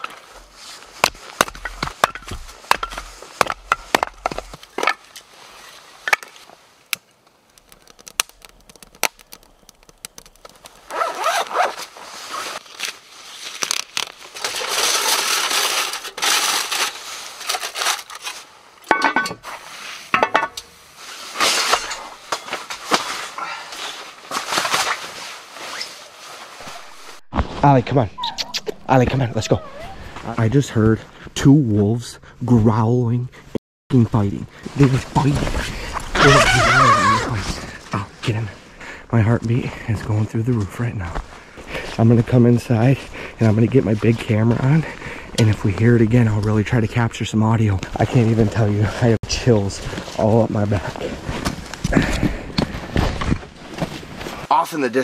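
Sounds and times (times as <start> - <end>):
hatchet splitting firewood: 0.0 - 5.2, 6.9 - 11.4
sleeping bag rustling: 10.8 - 18.6.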